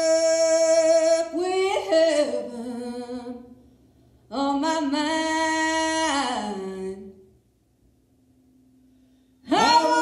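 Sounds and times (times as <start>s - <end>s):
unaccompanied folk singing: 9.5s - 10.0s.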